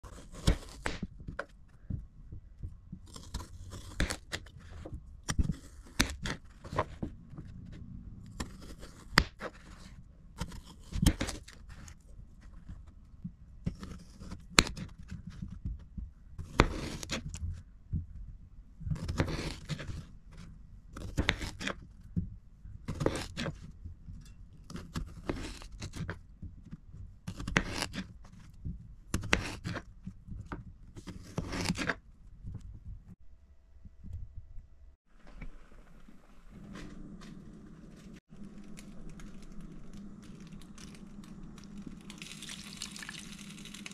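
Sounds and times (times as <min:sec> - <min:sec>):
knife slicing through potato: 0:00.0 - 0:01.5, 0:02.9 - 0:07.0, 0:08.3 - 0:11.9, 0:13.7 - 0:14.9, 0:16.4 - 0:17.4, 0:18.9 - 0:20.0, 0:21.0 - 0:21.8, 0:22.9 - 0:23.6, 0:24.7 - 0:26.2, 0:27.3 - 0:28.1, 0:29.1 - 0:29.9, 0:31.0 - 0:32.0.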